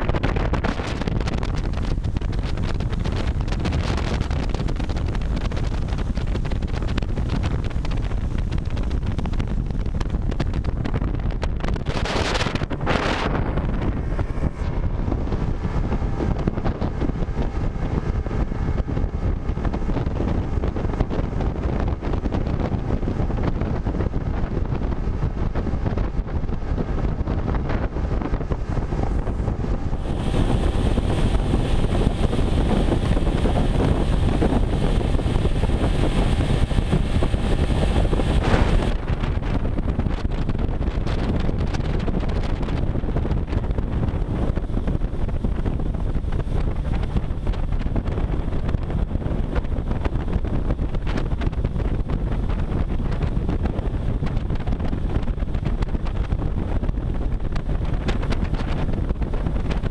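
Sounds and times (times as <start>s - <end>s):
outboard motor whining: 0.0s - 59.9s
wind buffeting microphone: 0.0s - 59.9s
water rushing: 28.5s - 39.4s.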